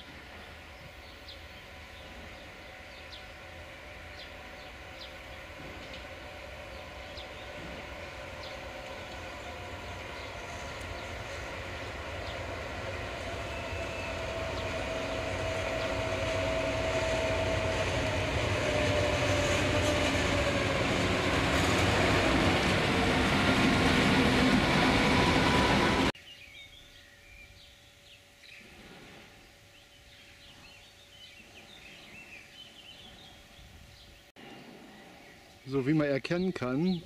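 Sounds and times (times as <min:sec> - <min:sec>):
diesel locomotive passing: 0:00.0 - 0:26.2
engine whine: 0:00.0 - 0:26.2.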